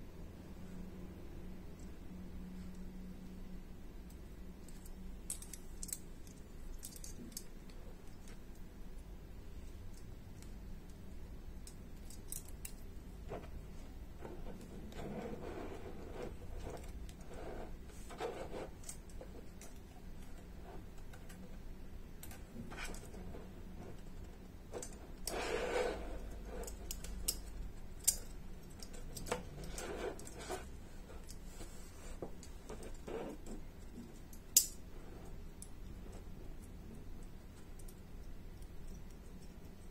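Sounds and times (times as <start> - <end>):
metal puzzle legs clicking: 4.6 - 8.7, 9.9 - 13.6, 26.4 - 30.6, 32.4 - 34.9.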